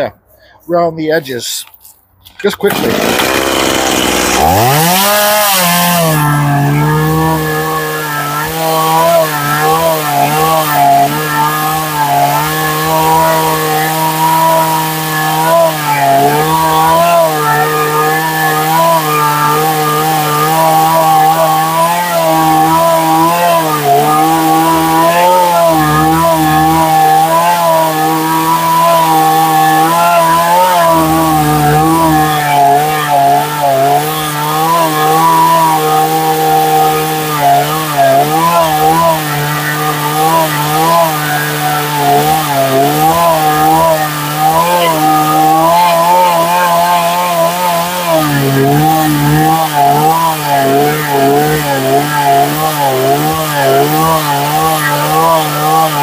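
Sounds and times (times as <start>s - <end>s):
chainsaw cutting wood: 2.6s - 56.0s.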